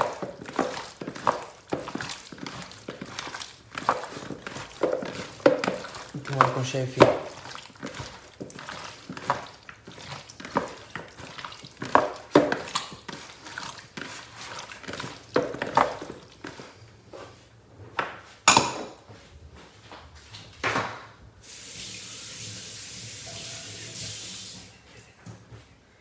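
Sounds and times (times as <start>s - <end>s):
hands mixing chicken in bowl: 0.0s - 17.6s.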